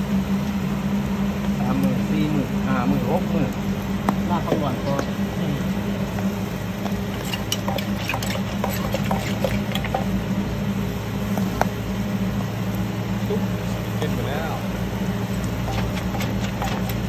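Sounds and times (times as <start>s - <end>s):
steady low hum: 0.0s - 17.0s
wet splashing: 6.9s - 10.2s, 15.3s - 17.0s.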